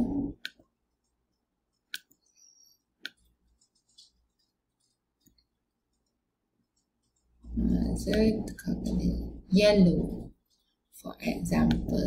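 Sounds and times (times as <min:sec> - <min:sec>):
computer mouse clicks: 0:00.3 - 0:02.3, 0:03.0 - 0:08.3.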